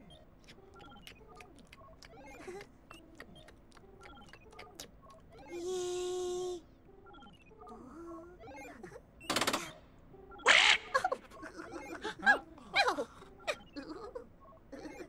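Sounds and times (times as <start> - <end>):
electronic bleeps and falling tones: 7.0 - 7.8.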